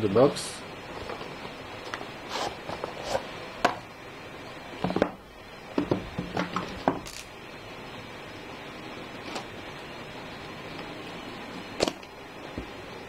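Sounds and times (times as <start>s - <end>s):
cardboard sleeve sliding off box: 2.3s - 3.3s.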